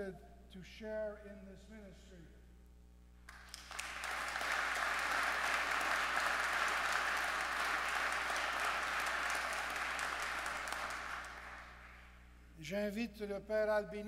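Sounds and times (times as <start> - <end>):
crowd applauding: 3.3 - 12.1.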